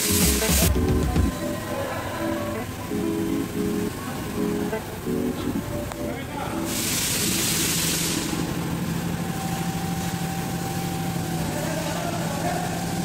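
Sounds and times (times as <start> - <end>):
engine idling: 0.0 - 13.0
brief hiss: 6.7 - 8.6.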